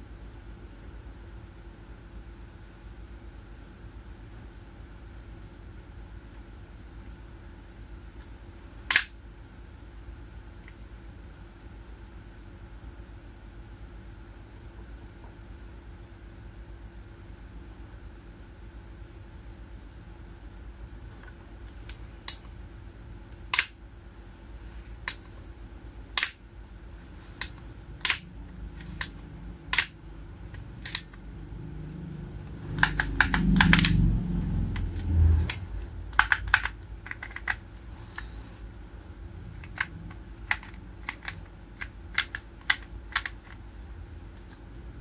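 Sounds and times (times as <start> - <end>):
plastic toy buckle clicks: 8.9 - 9.1, 23.5 - 23.8, 26.2 - 26.4, 27.4 - 28.2, 28.8 - 31.2, 32.8 - 34.0, 34.8 - 37.6, 39.6 - 43.6.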